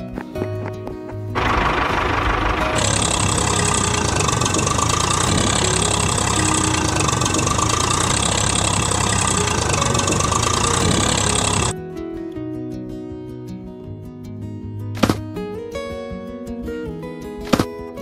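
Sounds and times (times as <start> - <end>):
vehicle engine running: 1.3 - 11.7.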